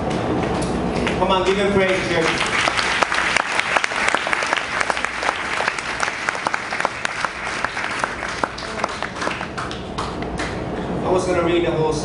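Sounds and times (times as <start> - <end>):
congregation applauding: 1.0 - 10.6.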